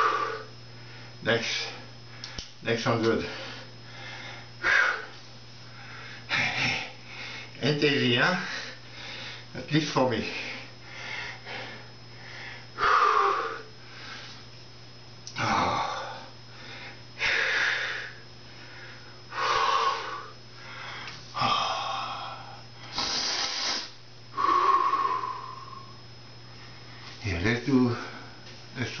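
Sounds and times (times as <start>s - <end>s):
man breathing hard: 0.0s - 2.5s, 3.2s - 7.6s, 8.3s - 9.5s, 10.2s - 14.5s, 15.4s - 26.0s.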